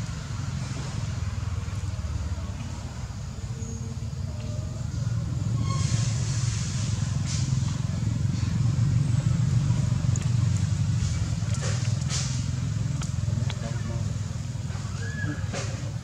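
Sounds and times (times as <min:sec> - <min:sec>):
vehicle engine rumble: 0:00.0 - 0:16.0
hiss: 0:05.8 - 0:07.9.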